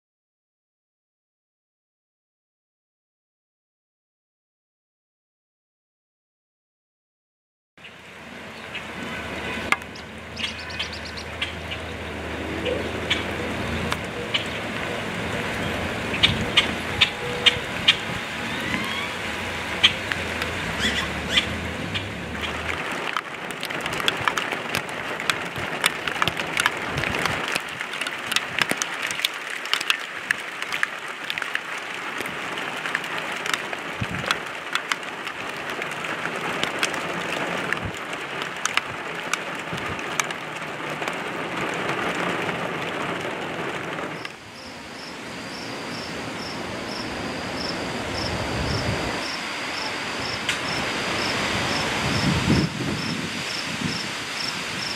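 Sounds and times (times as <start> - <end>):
rain hissing: 7.8 - 54.9
sharp rain drop taps: 9.6 - 12.4, 13.0 - 47.0
crickets chirping: 44.2 - 54.9.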